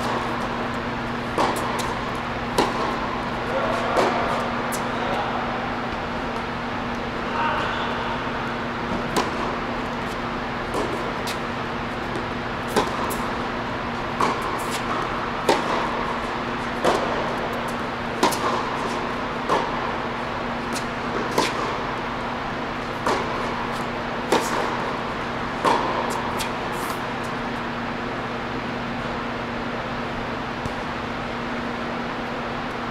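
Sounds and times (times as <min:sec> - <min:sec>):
tennis ball off rackets: 0:00.0 - 0:05.0, 0:08.6 - 0:27.6
steady low hum: 0:00.0 - 0:32.9
ball bouncing on court: 0:01.3 - 0:05.2, 0:12.0 - 0:19.8.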